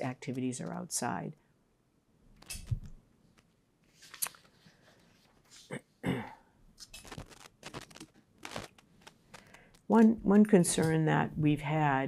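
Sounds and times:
paper rustling: 3.9s - 5.7s, 6.8s - 9.8s
person clearing throat: 5.6s - 6.5s.

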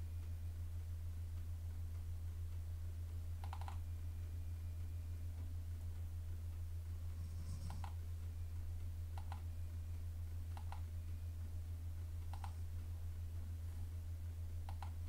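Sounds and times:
low hum: 0.0s - 15.0s
faint sharp clicks: 1.4s - 3.9s, 4.8s - 10.9s, 12.2s - 12.9s, 14.6s - 15.0s.

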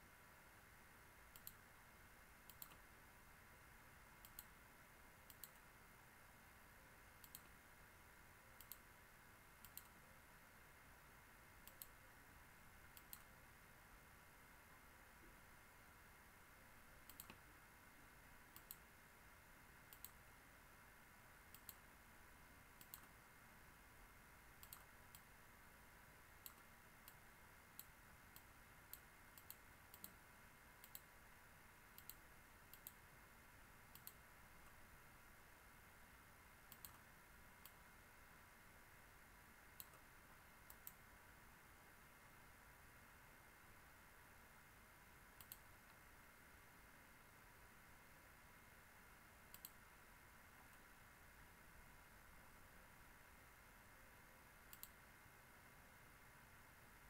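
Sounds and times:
faint background hiss: 0.0s - 57.0s
computer mouse clicks: 1.3s - 1.6s, 2.4s - 2.9s, 4.2s - 4.6s, 5.2s - 5.7s, 7.2s - 7.6s, 8.6s - 8.9s, 9.6s - 10.0s, 11.6s - 12.0s, 12.9s - 13.4s, 17.0s - 17.5s, 18.5s - 18.9s, 19.9s - 20.2s, 21.5s - 21.9s, 22.8s - 23.2s, 24.6s - 25.3s, 26.4s - 30.2s, 30.8s - 31.1s, 31.9s - 33.1s, 33.9s - 34.8s, 36.7s - 37.8s, 39.8s - 41.0s, 45.4s - 46.0s, 49.5s - 49.8s, 50.6s - 50.9s, 54.6s - 55.0s.

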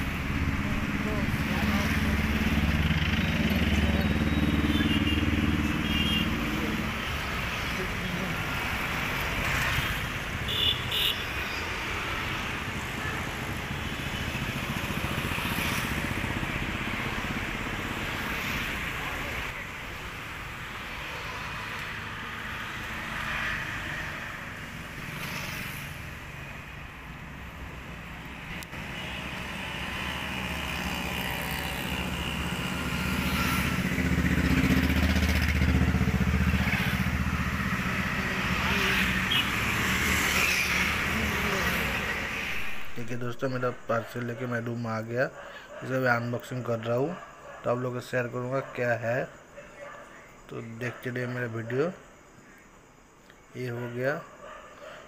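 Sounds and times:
engine running close by: 0.0s - 6.9s, 28.7s - 42.0s
cars and scooters passing: 0.0s - 55.0s.

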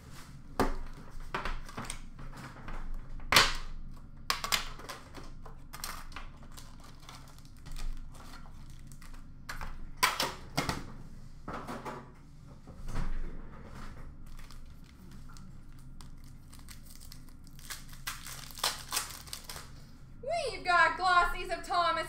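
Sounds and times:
foil packs crinkling: 4.4s - 9.3s, 14.2s - 19.8s.

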